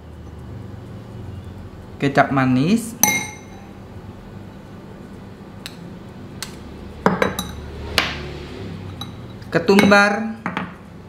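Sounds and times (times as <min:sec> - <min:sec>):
low steady hum: 0:00.0 - 0:11.0
metal spoon clinking glass: 0:03.0 - 0:03.7, 0:07.0 - 0:07.6, 0:08.9 - 0:10.7.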